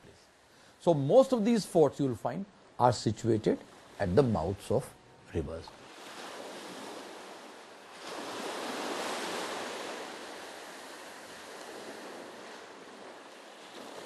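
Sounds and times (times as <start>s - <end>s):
sea waves washing in: 3.3s - 14.0s.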